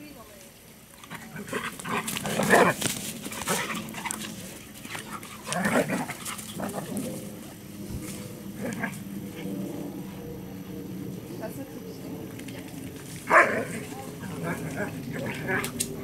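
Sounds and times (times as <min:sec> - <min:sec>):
dogs vocalising in play: 0:01.0 - 0:07.4.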